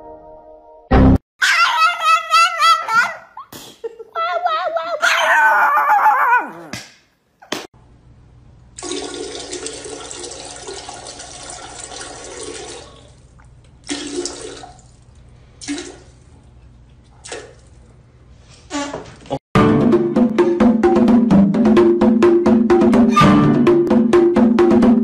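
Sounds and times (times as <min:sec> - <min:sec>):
dog howling: 0:01.4 - 0:03.4, 0:04.2 - 0:06.7
toilet flushing: 0:08.8 - 0:15.0, 0:15.6 - 0:16.3.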